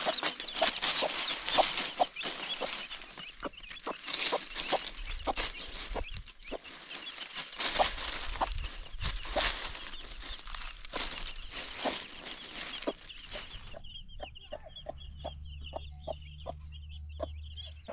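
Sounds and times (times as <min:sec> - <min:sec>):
dry leaves crackling: 0:00.0 - 0:13.8
hen clucking: 0:00.0 - 0:17.9.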